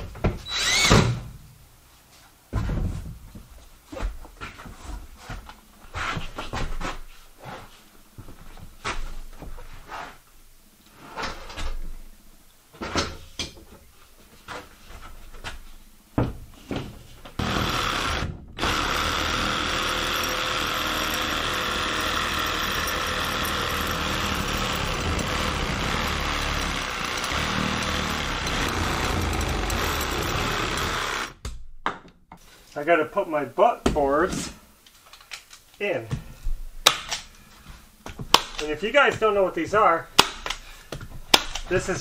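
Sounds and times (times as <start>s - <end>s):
power tool motor running: 17.4s - 31.4s.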